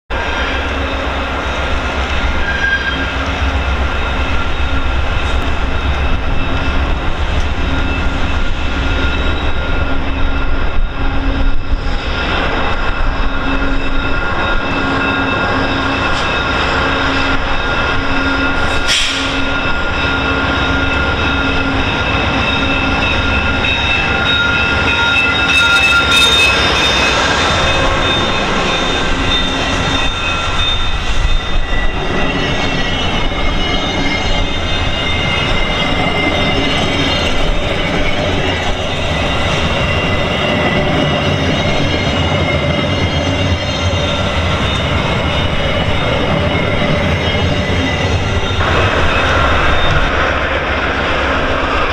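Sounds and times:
diesel locomotive engine drone: 0.1 - 51.9
train wheels rumbling and squealing: 0.1 - 51.9.

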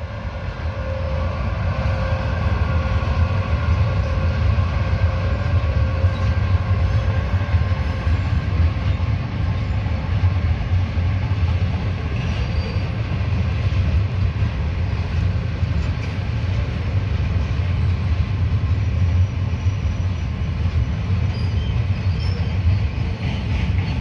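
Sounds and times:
train wheels rumbling on rail: 0.0 - 24.0.

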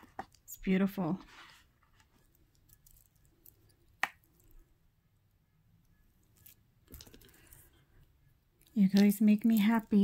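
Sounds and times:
jewelry rustling and scraping: 1.0 - 4.6.

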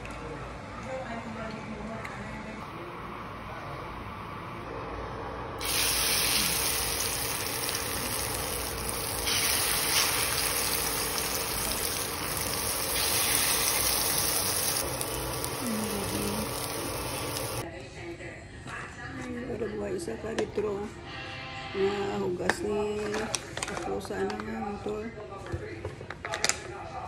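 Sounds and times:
eggplant sizzling in hot oil: 5.6 - 17.6.

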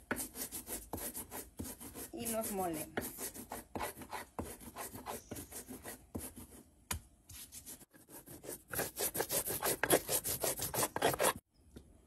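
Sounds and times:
pestle grinding in mortar: 8.2 - 11.4.

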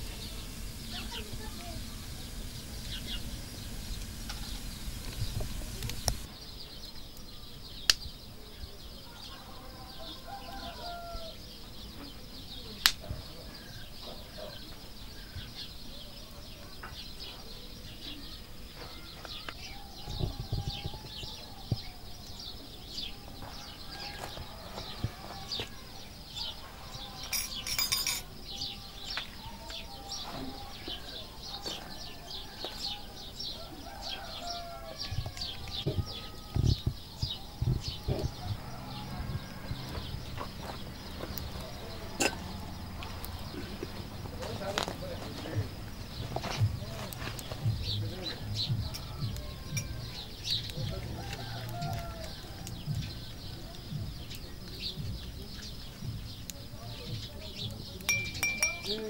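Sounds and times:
fire popping: 0.0 - 8.3, 12.7 - 14.0, 33.0 - 59.0
wood fire burning: 0.0 - 8.4, 10.3 - 14.0, 30.6 - 58.9
birds chirping: 0.0 - 59.0.

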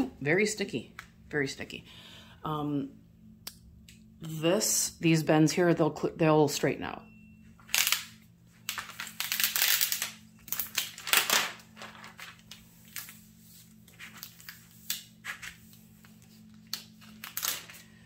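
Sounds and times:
plastic film crinkling: 7.6 - 18.0.

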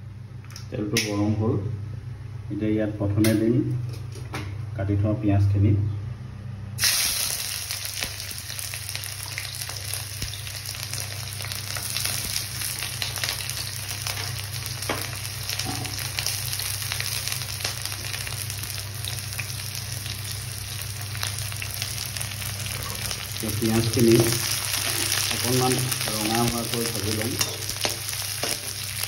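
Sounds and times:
onions sizzling in hot oil: 6.8 - 29.0.

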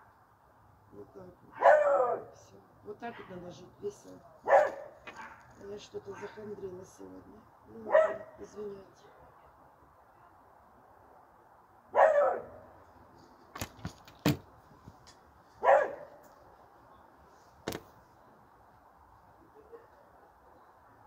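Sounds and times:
dog barking: 1.6 - 2.3, 4.4 - 5.5, 7.9 - 8.4, 12.0 - 12.6, 15.6 - 16.2.

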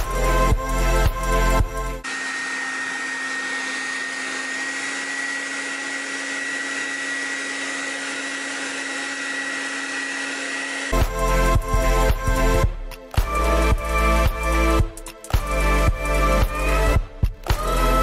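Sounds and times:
music: 0.0 - 2.0, 10.9 - 18.0
hair dryer whining: 0.0 - 18.0.

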